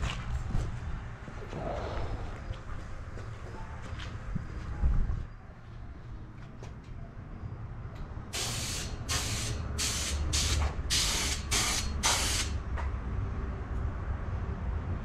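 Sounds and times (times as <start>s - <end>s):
spray paint hissing bursts: 8.3s - 12.6s.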